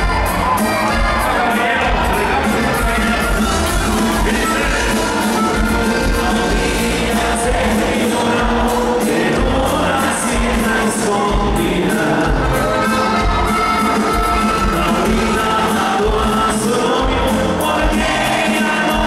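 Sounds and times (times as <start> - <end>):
live band playing: 0.0 - 19.0
person singing: 0.9 - 19.0.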